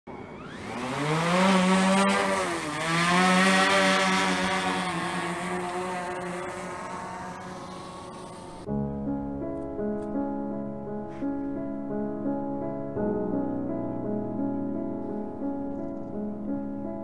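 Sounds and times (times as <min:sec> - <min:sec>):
drone motors whining: 0:00.1 - 0:08.7
soft piano music: 0:04.6 - 0:17.0.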